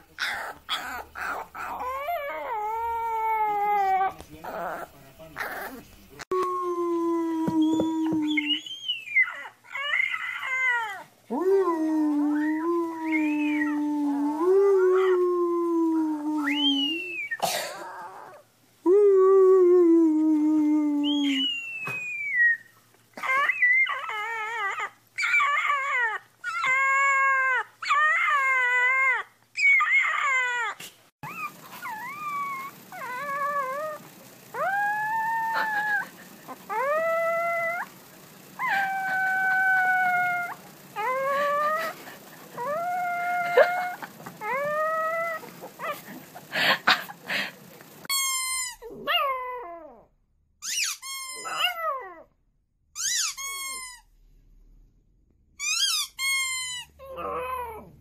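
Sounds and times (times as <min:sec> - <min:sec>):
puppies howling: 0:00.0 - 0:05.8, 0:07.7 - 0:11.1, 0:12.1 - 0:13.8, 0:21.0 - 0:47.5
puppies whimpering yips: 0:08.2 - 0:11.0, 0:21.4 - 0:34.0, 0:38.6 - 0:42.0.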